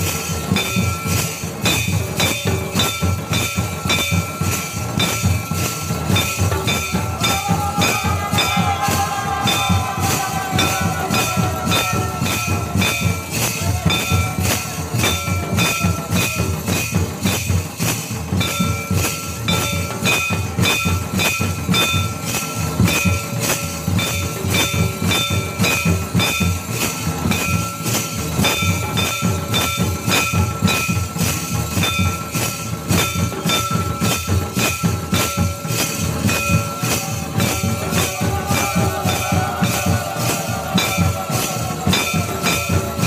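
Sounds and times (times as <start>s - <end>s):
steady high tone: 0.0s - 17.7s, 33.3s - 43.0s
drums beaten in fast rhythm: 0.0s - 43.0s.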